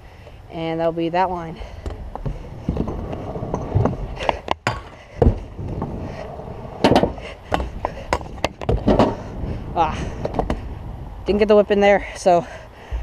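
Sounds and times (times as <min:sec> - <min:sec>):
wind rumbling on microphone: 0:00.0 - 0:13.0
scooter wheels rolling on concrete: 0:00.2 - 0:12.3
sharp knocks and clatter: 0:06.8 - 0:09.2.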